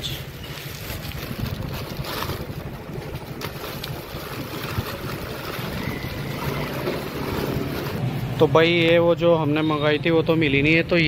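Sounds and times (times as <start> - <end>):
plastic bag rustling: 0.3 - 8.2.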